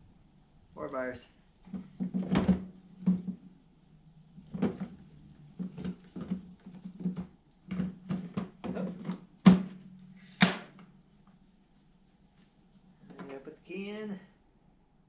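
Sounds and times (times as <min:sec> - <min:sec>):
plastic lid snapping shut: 0:10.4 - 0:10.9.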